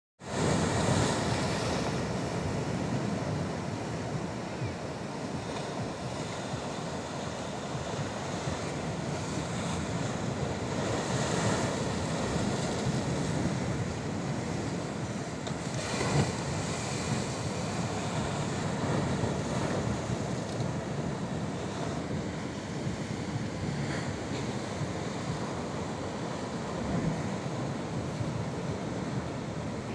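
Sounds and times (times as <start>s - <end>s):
surf washing over rocky shore: 0.2s - 29.9s
wind buffeting microphone: 0.3s - 29.9s.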